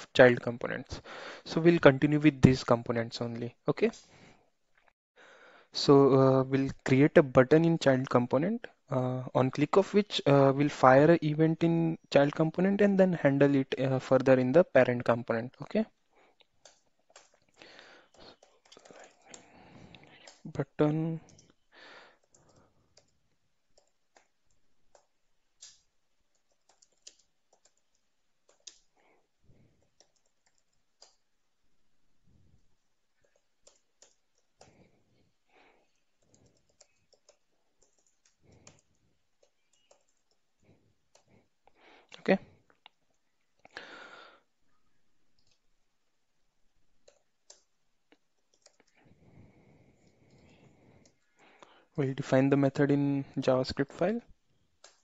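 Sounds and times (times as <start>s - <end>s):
faint keyboard keystrokes: 22.2s - 29.0s, 32.4s - 35.0s, 35.6s - 41.4s, 47.0s - 51.7s.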